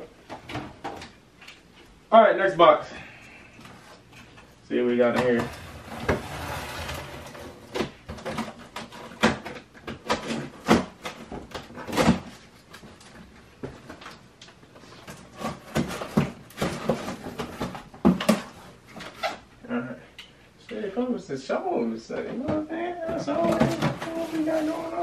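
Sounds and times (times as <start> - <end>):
cardboard rustle: 23.2 - 25.0.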